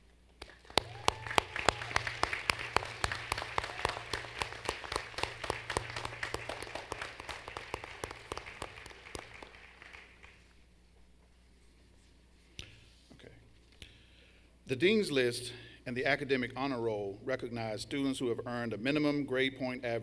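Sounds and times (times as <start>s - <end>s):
sharp close claps: 0.4s - 10.4s
audience applauding: 0.4s - 10.5s.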